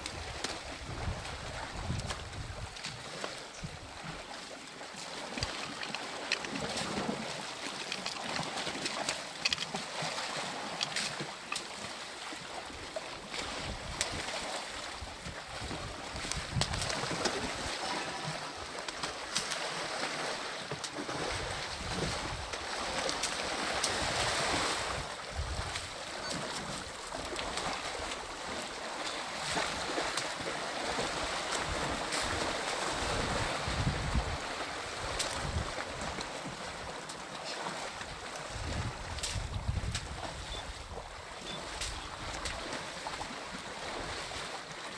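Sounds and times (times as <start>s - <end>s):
wind buffeting microphone: 0.0s - 2.8s, 15.0s - 17.6s, 24.0s - 26.0s, 33.0s - 34.5s, 38.5s - 41.0s
muddy water splashing: 0.0s - 44.9s.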